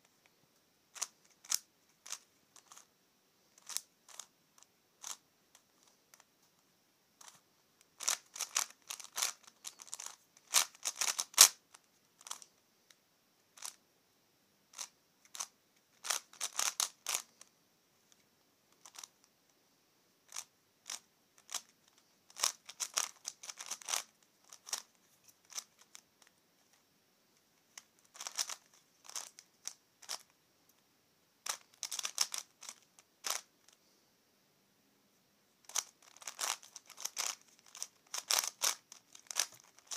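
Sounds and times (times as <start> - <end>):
puzzle cube plastic clicks: 0.9 - 2.9, 3.6 - 6.3, 7.2 - 12.5, 13.6 - 13.8, 14.7 - 17.5, 18.7 - 19.3, 20.3 - 26.8, 27.7 - 30.3, 31.4 - 33.8, 35.7 - 39.9.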